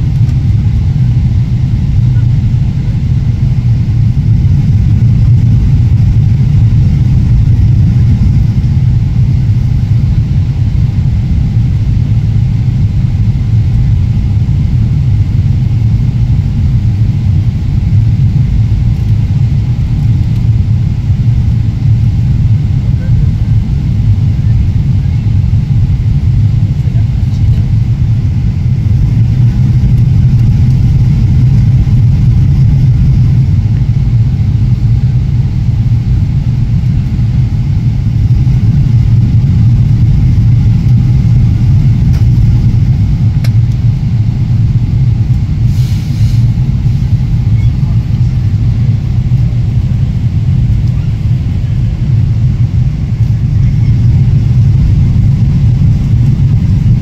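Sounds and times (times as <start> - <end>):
airplane cabin engine rumble: 0.0 - 57.0
faint brief hiss: 45.7 - 46.4.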